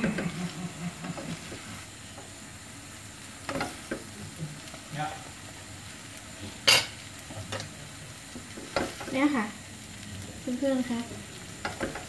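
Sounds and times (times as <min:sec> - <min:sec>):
noodles sizzling in a wok: 0:00.0 - 0:12.0.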